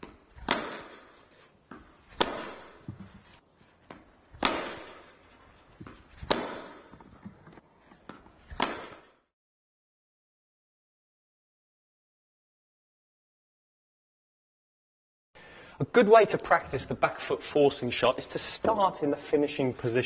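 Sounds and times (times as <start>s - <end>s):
cricket bat hitting ball: 0.0s - 3.1s, 4.0s - 5.0s, 5.8s - 7.0s, 8.5s - 9.2s
ball knocking: 0.0s - 3.3s.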